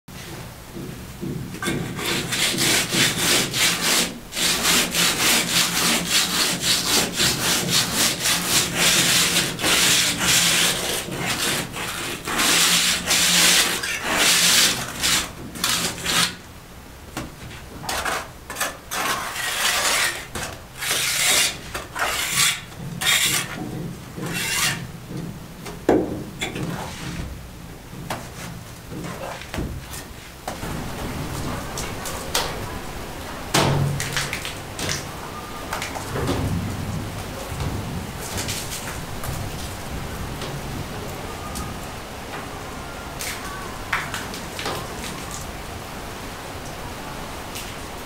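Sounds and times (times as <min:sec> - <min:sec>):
trowel scraping concrete wall: 0:01.6 - 0:16.4, 0:17.8 - 0:24.9.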